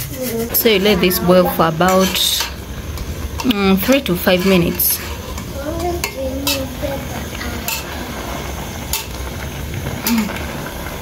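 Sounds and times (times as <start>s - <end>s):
pasta server stirring spaghetti: 0.0s - 11.0s
metal clinking on pot: 1.8s - 8.0s.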